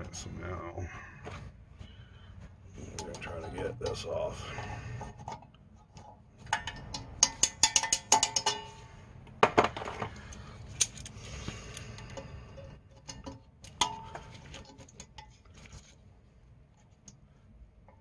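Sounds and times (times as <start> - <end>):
pliers and spring clicking on metal: 6.0 - 8.8.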